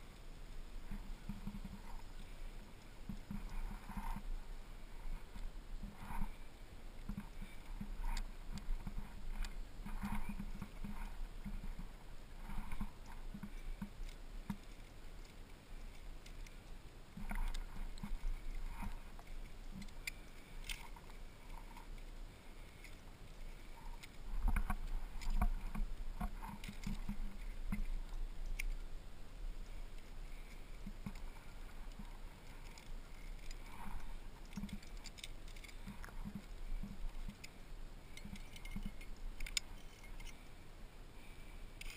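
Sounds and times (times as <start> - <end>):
carabiners clinking: 30.0 - 40.5.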